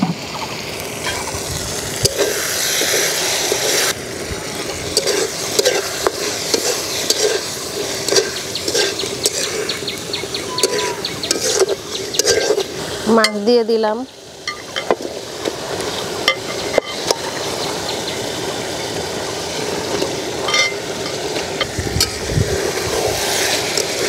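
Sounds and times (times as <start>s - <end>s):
curry sizzling and bubbling: 0.0s - 24.0s
spatula scraping pan: 4.7s - 9.7s, 10.5s - 13.4s.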